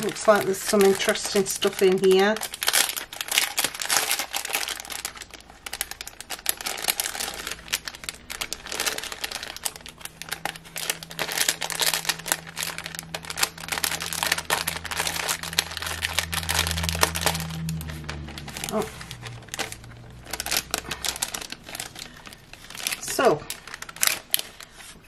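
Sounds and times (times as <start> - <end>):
cardstock pieces rustling: 0.0 - 25.0
plastic packet crinkling: 0.0 - 25.0.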